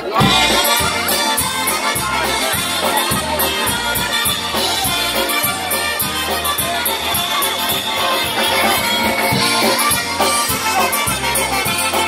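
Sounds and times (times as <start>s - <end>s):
accordion and concertina: 0.0s - 12.0s
brass horns: 0.0s - 12.0s
drums oom-pah beat: 0.0s - 12.0s
electric bass: 0.0s - 12.0s.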